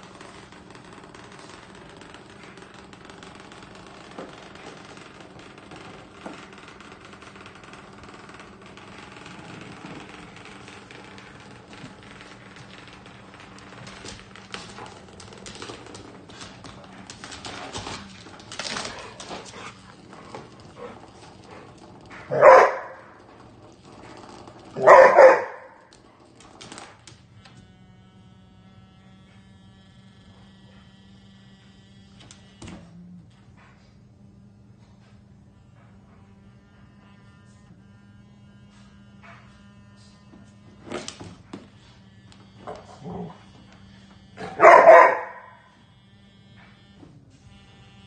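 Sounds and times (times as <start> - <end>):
low buzz: 0.0 - 33.5, 34.1 - 48.0
dog paws clicking on wooden floor: 0.0 - 34.0, 34.8 - 45.9
dog barking: 22.3 - 23.0, 24.8 - 25.8, 44.4 - 45.7.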